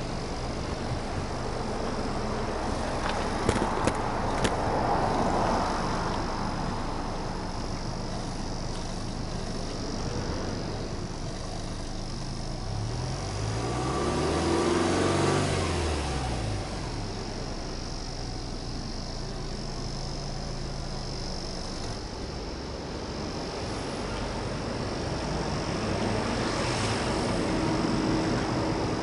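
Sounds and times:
car engine idling and revving: 0.0s - 29.0s.

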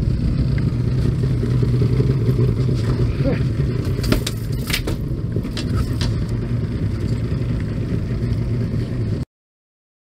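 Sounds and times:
boat engine rumbling: 0.0s - 9.2s.

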